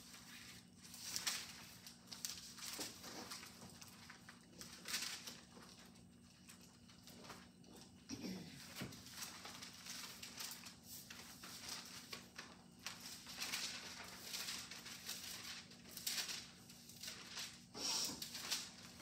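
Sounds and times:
thin pages rustling and flipping: 0.0 - 8.0, 8.6 - 19.0
faint steady hum: 0.0 - 19.0
small taps and crinkles: 1.1 - 14.6.

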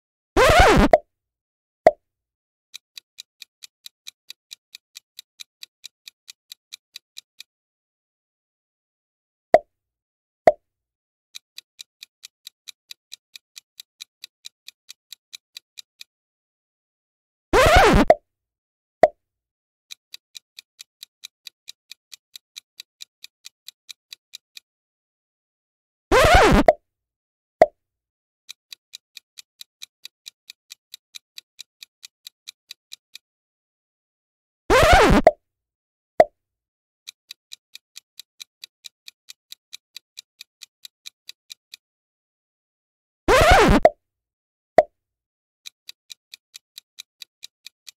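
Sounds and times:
light ticks: 2.7 - 7.5, 11.4 - 16.1, 19.9 - 24.7, 28.5 - 33.2, 37.1 - 41.8, 45.6 - 47.9.

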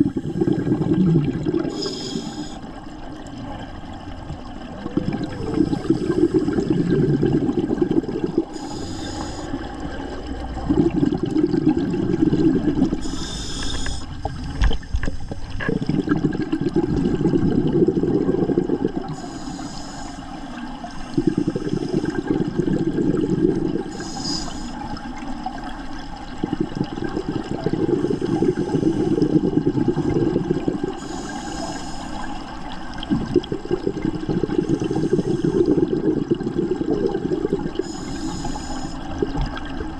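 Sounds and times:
bubbles on exhale: 0.0 - 39.9
regulator hiss on inhale: 1.6 - 2.7, 8.4 - 9.7, 12.9 - 15.6, 19.0 - 22.3, 23.8 - 25.0, 27.8 - 32.6, 34.5 - 36.1, 37.3 - 39.2.

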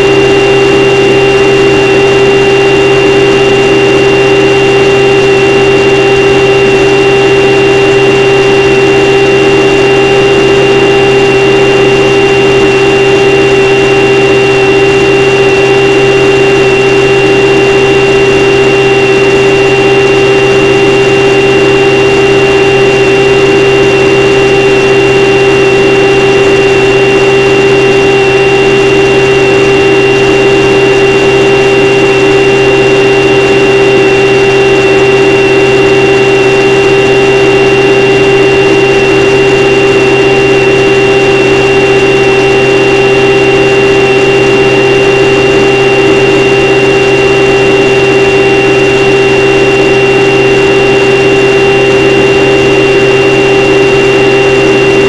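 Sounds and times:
model plane motor and propeller: 0.0 - 55.0.

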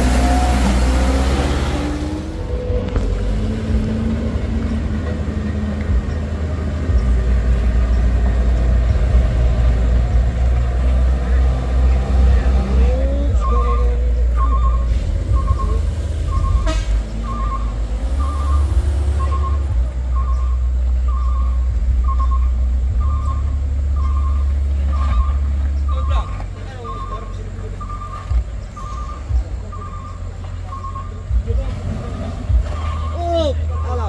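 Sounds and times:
heavy vehicle engine rumble: 0.0 - 34.0
reversing alarm beeping: 13.4 - 31.4.

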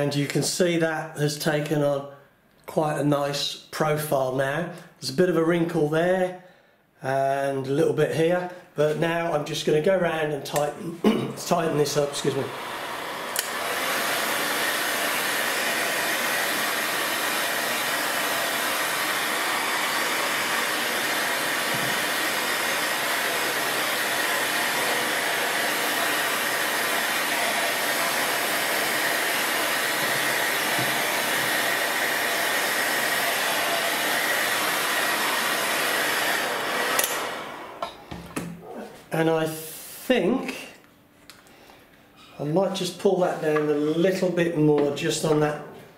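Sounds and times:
heat gun blowing hot air: 11.4 - 38.3.

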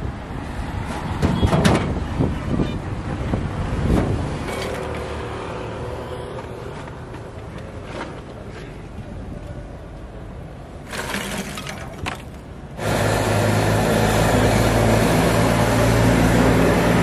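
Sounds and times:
wind rumbling on microphone: 0.0 - 4.5.

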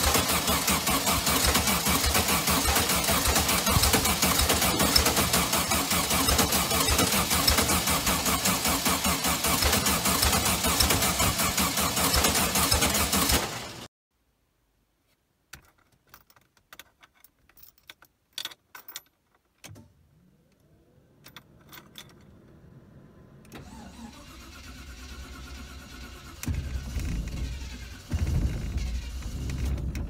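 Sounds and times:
car engine starting: 0.0 - 13.9, 20.0 - 30.0
starter motor whine: 23.4 - 30.0.

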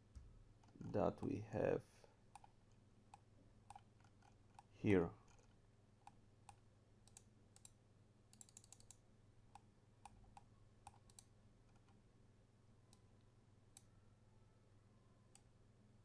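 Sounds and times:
faint low hum: 0.0 - 16.0
computer mouse clicks: 2.3 - 4.7, 5.3 - 12.0.

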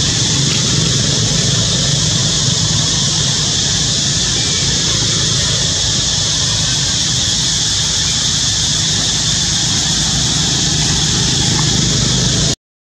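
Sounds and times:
high-pitched hiss: 0.0 - 12.6
low hum: 9.1 - 12.6.

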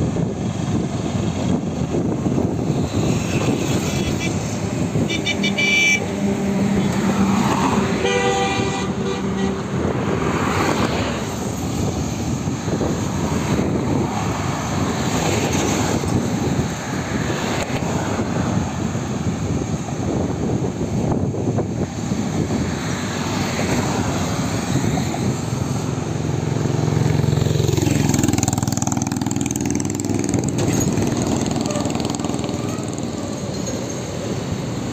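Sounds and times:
highway traffic: 0.0 - 34.9
vehicle horn: 3.3 - 6.2, 8.0 - 9.8.

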